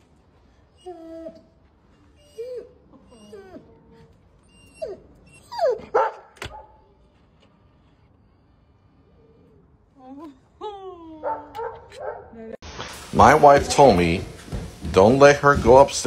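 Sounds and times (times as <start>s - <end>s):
dog whining and whimpering: 0.5s - 6.0s, 6.7s - 12.0s.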